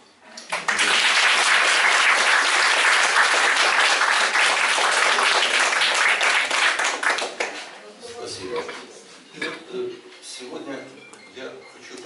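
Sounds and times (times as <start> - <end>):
audience applauding: 0.5 - 7.7.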